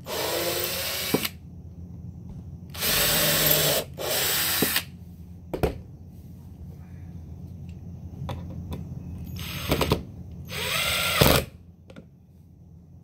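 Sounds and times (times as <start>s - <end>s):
cordless drill boring wood: 0.0s - 1.3s, 2.8s - 4.8s, 10.5s - 11.5s.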